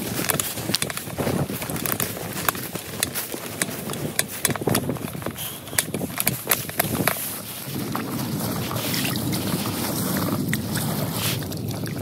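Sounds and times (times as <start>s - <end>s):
sharp clicks and knocks: 0.0s - 7.5s
plastic bag crinkling: 0.0s - 10.5s.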